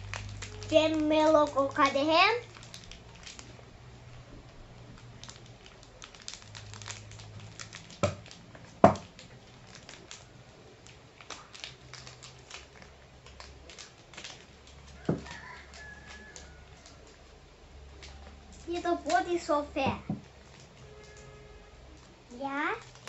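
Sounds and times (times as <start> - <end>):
plastic wrappers crinkling: 0.0 - 23.0
scissors cutting plastic: 5.2 - 17.2.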